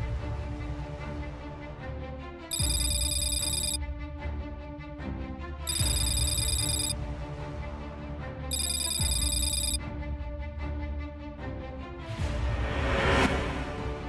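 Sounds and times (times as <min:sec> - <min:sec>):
telephone ringing: 0:02.5 - 0:03.8, 0:05.7 - 0:07.0, 0:08.5 - 0:09.8.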